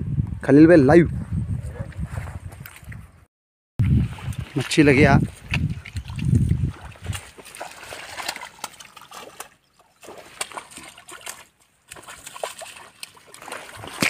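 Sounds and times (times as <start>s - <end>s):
fish splashing in water: 5.7s - 14.0s.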